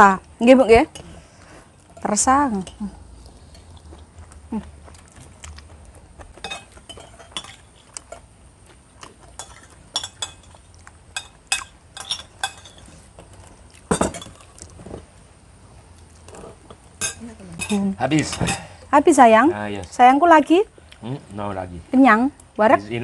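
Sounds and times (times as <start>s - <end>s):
spoons clinking on ceramic plates: 6.4s - 8.2s, 9.4s - 10.6s, 11.2s - 12.9s, 17.0s - 18.7s.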